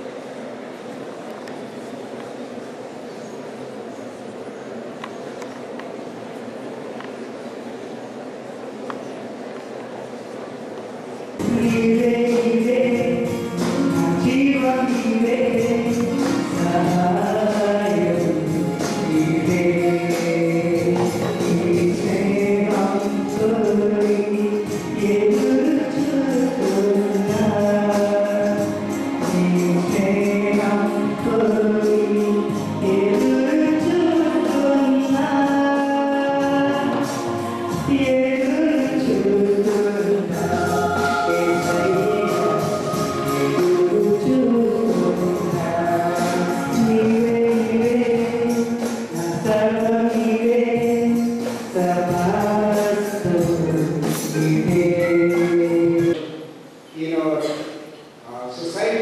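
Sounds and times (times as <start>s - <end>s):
music accompaniment with percussion: 11.4s - 56.2s
man singing into a microphone: 11.4s - 56.3s.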